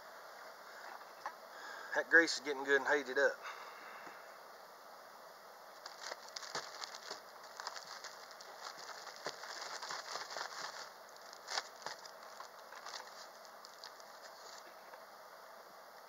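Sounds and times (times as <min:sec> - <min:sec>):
small ticks and rustles: 0:05.7 - 0:15.1
plastic bag crinkling: 0:05.8 - 0:14.7.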